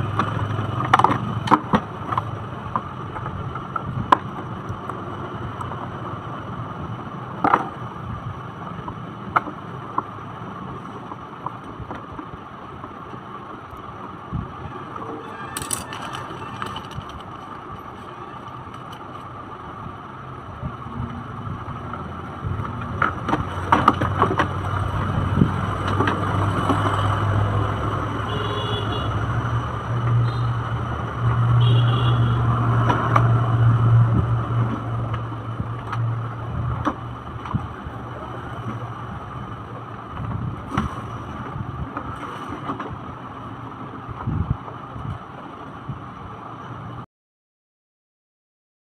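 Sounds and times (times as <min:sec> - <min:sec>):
plastic wheels rolling on tile: 0:15.2 - 0:19.3.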